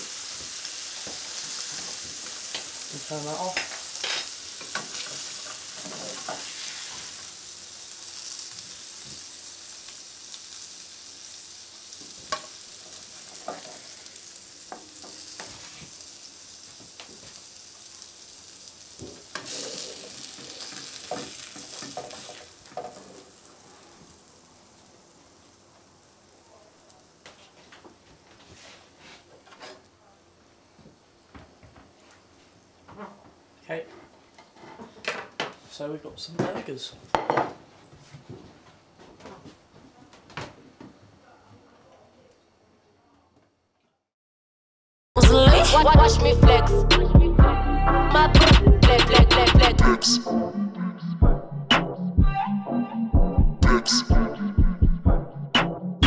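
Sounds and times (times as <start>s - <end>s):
burgers sizzling in frying pan: 0.0s - 28.7s.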